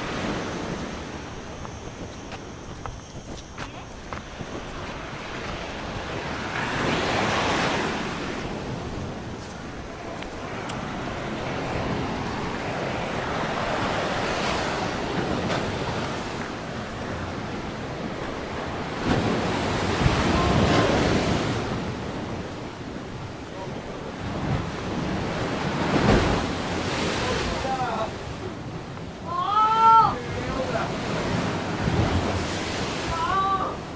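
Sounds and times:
wind noise on microphone: 0:00.0 - 0:23.4
sea waves breaking ashore: 0:00.0 - 0:33.9.

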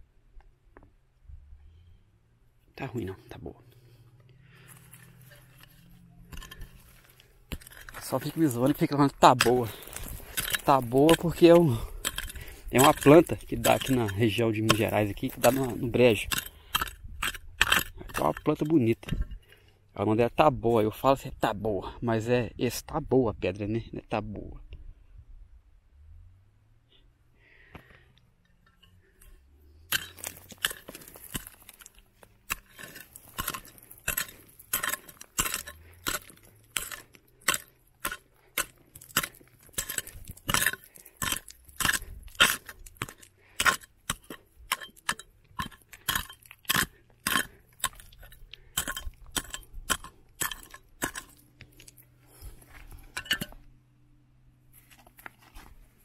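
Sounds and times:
stones clinking together: 0:04.9 - 0:19.6, 0:28.8 - 0:53.7.

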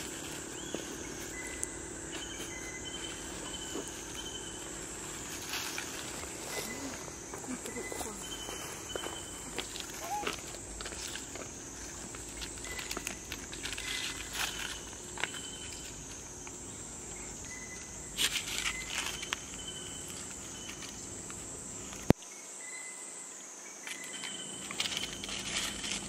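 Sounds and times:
rustling: 0:00.0 - 0:16.3, 0:23.9 - 0:26.0
high-pitched insect chorus: 0:00.0 - 0:26.0.

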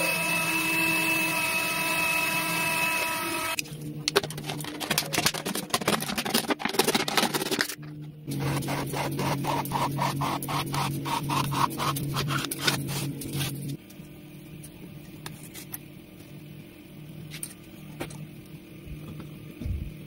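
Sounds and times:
plastic bottle scraping and crackling: 0:04.1 - 0:07.8
steady low hum: 0:07.2 - 0:20.0.

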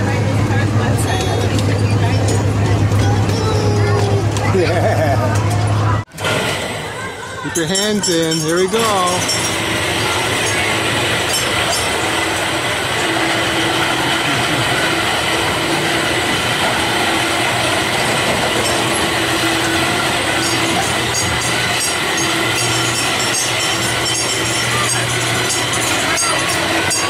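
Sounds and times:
ride mechanical rumble: 0:00.0 - 0:27.0
low hum: 0:09.1 - 0:27.0.

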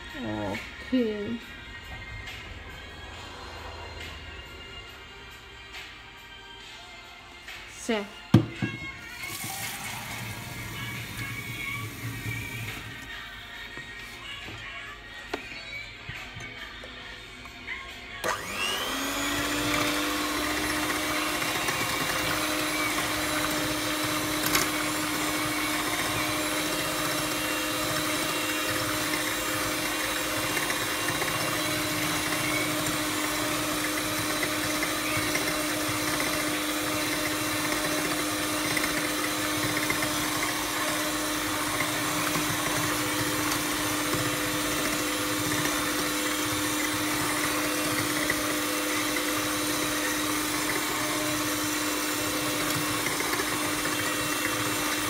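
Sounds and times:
electric hand mixer whisking batter: 0:09.0 - 0:13.8, 0:18.2 - 0:55.0.

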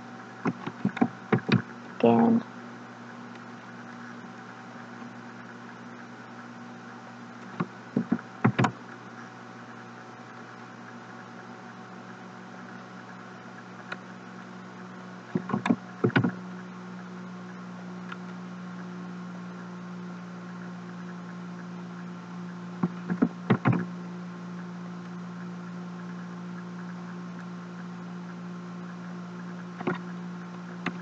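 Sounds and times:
steady low hum: 0:00.0 - 0:31.0
computer mouse clicks: 0:15.4 - 0:16.4.

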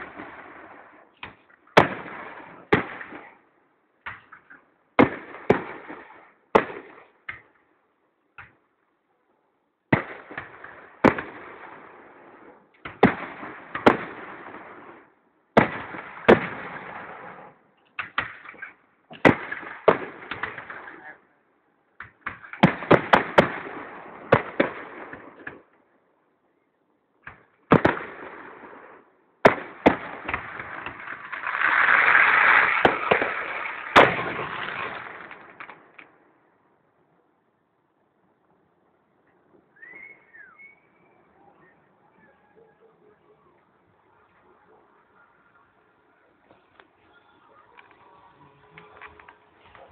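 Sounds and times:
fireworks bangs: 0:00.0 - 0:03.4, 0:04.0 - 0:07.5, 0:09.9 - 0:21.2, 0:22.1 - 0:25.7, 0:27.2 - 0:36.2
fireworks crackling: 0:00.0 - 0:03.4, 0:27.3 - 0:36.2, 0:46.4 - 0:49.9.

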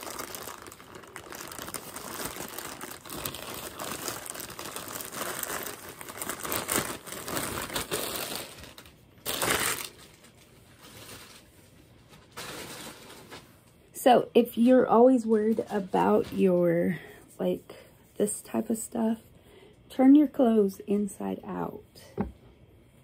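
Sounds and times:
plastic mailer bag crinkling: 0:00.0 - 0:13.5.

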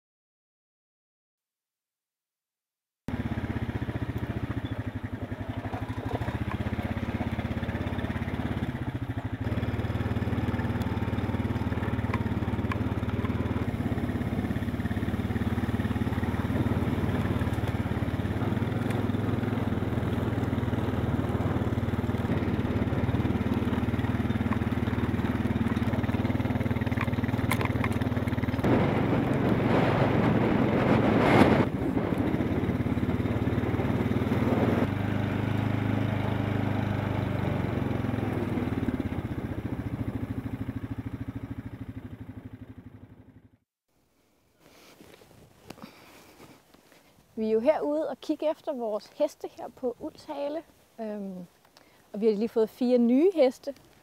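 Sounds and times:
quad bike engine running: 0:03.1 - 0:43.6.

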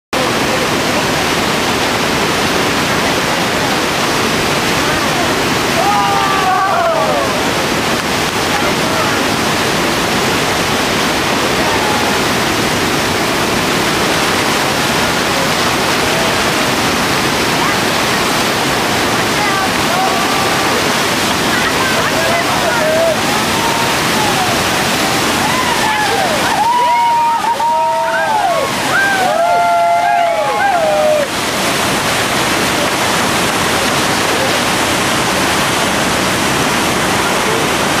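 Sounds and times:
whitewater rushing: 0:00.2 - 0:38.0.

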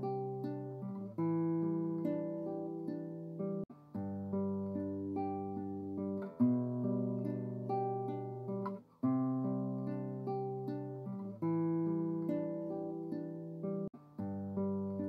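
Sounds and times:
acoustic guitar picked chords: 0:00.0 - 0:15.0.

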